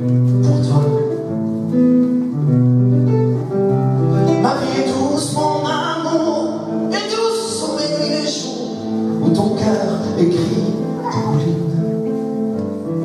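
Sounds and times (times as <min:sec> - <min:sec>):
acoustic guitar: 0:00.0 - 0:13.0
man singing: 0:04.1 - 0:12.2.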